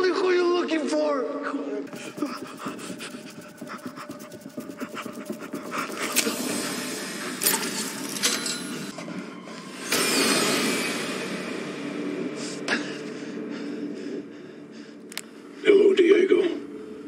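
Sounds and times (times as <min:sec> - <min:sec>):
rustling and scraping: 0:01.9 - 0:08.9.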